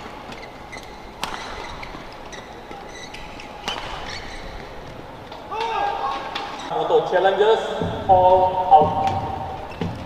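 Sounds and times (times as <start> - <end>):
shoe squeaks on court: 0.2 - 4.8
rackets striking shuttlecock: 1.1 - 2.0, 3.6 - 4.2.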